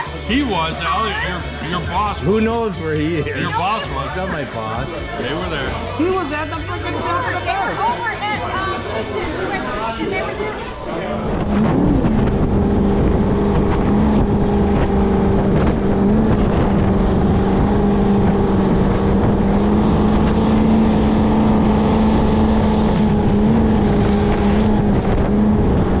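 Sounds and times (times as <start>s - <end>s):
powerboat engine droning: 0.0s - 26.0s
wind rushing: 11.0s - 26.0s.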